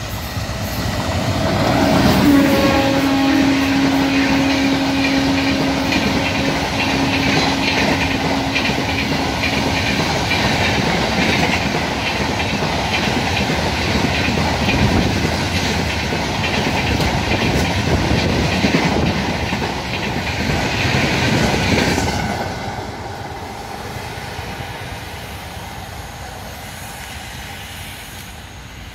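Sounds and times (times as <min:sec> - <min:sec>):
train wheels clattering over rail joints: 0:00.0 - 0:22.7.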